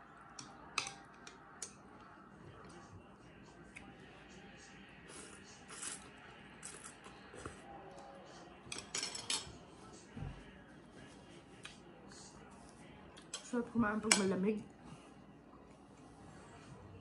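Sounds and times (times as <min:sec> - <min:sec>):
noodles slurped and chewed: 0:05.0 - 0:07.6
metal chopsticks clinking on bowl: 0:08.7 - 0:09.5.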